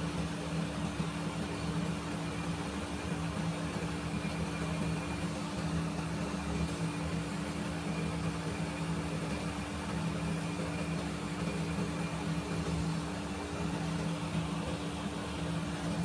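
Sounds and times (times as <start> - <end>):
low machine hum: 0.0 - 16.0.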